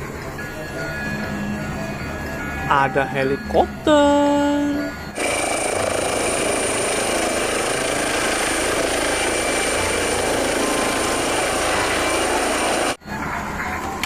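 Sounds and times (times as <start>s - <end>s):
toy helicopter rotor whine: 5.0s - 13.0s.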